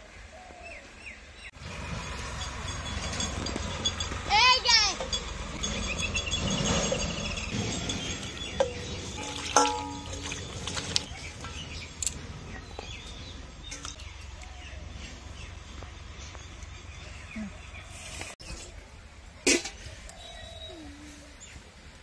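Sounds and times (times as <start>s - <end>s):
steel bowls and plates clinking: 2.2s - 14.3s
water splashing in bowl: 7.8s - 12.1s.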